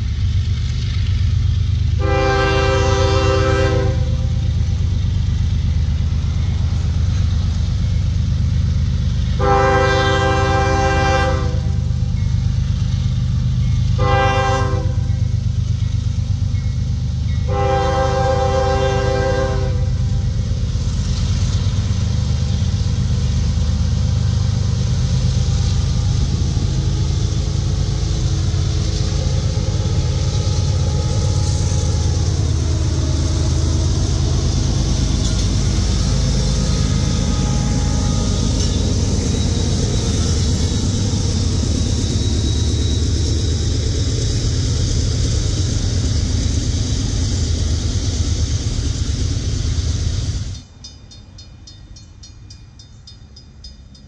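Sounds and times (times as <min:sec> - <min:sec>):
train engines rumbling: 0:00.0 - 0:54.0
locomotive air horn blasts: 0:02.0 - 0:04.4, 0:09.3 - 0:11.9, 0:14.0 - 0:15.3, 0:17.4 - 0:20.4, 0:36.7 - 0:39.1.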